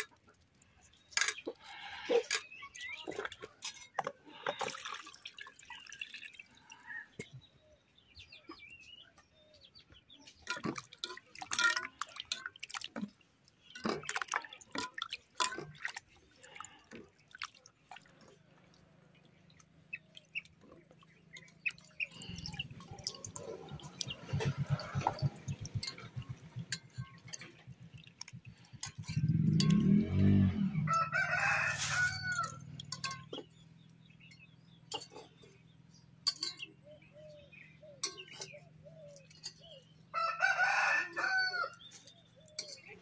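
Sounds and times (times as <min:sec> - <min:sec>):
water splashing in metal bowl: 0:00.0 - 0:06.8, 0:10.4 - 0:33.6, 0:38.0 - 0:39.7.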